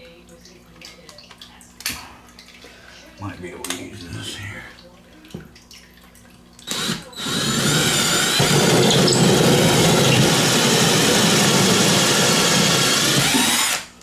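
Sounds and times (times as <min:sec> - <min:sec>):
cordless drill motor whine: 0:06.7 - 0:13.9
hole saw grinding drywall: 0:06.9 - 0:13.9.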